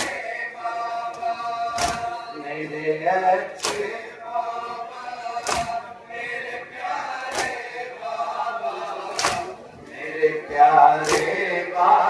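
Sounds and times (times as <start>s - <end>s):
men chanting in unison: 0.0s - 12.0s
chest-beating slaps: 1.8s - 2.1s, 3.6s - 4.0s, 5.4s - 5.8s, 7.3s - 7.6s, 9.1s - 9.5s, 11.0s - 11.4s.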